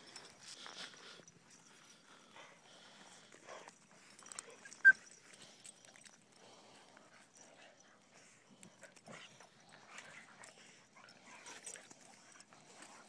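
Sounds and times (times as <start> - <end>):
dogs playing on grass: 0.0 - 13.0.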